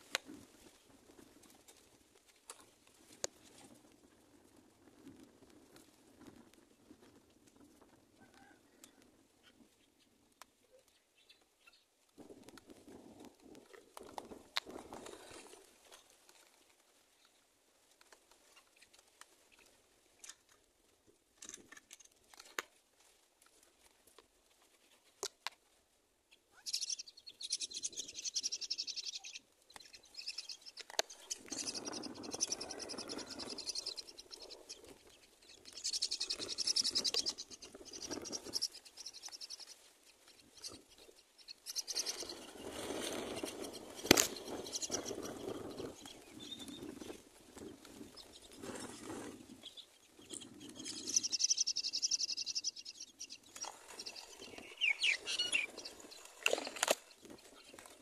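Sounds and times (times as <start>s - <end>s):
myna nestlings begging: 30.0s - 39.7s, 40.3s - 42.5s, 43.3s - 46.6s, 50.2s - 56.0s.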